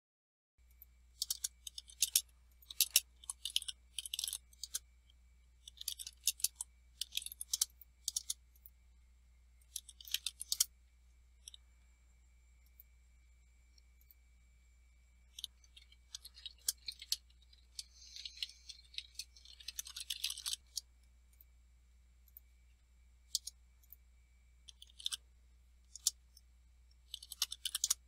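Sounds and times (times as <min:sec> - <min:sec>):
faint low hum: 0:00.6 - 0:28.0
keyboard typing: 0:00.7 - 0:04.8, 0:05.6 - 0:08.7, 0:09.6 - 0:10.7, 0:15.3 - 0:20.9, 0:24.7 - 0:25.2, 0:27.1 - 0:28.0.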